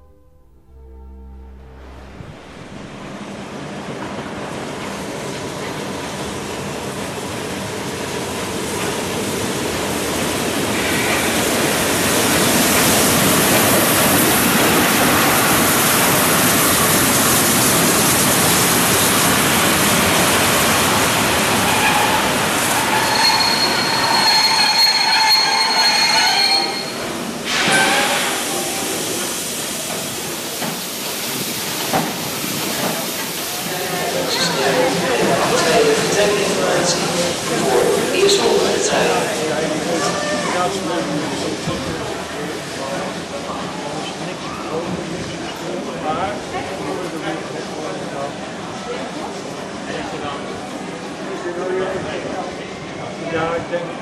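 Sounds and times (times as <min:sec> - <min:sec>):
steam locomotive rushing: 0:01.0 - 0:54.0
wheel squeal: 0:21.6 - 0:28.4.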